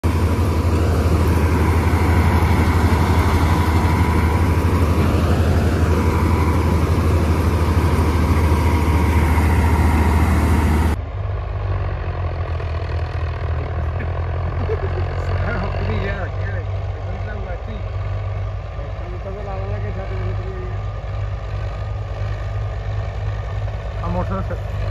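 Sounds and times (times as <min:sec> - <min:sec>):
auger whine: 0:00.0 - 0:24.9
combine harvester drone: 0:00.0 - 0:24.9
tractor diesel engine: 0:00.0 - 0:24.9.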